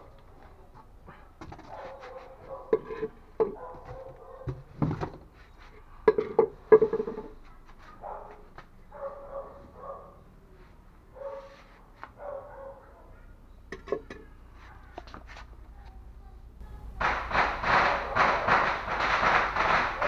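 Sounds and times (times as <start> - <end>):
sharp knocks and clatter: 16.9 - 20.0.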